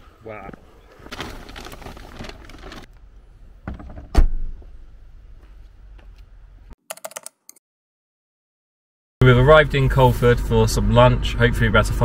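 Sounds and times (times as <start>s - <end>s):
bags rustling: 0.8s - 2.9s
car tailgate thumping shut: 3.7s - 4.6s.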